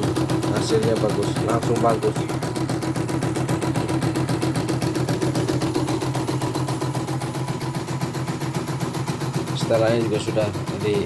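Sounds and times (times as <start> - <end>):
sewing needle rapid clatter: 0.0 - 7.2
machine motor hum: 0.0 - 11.0.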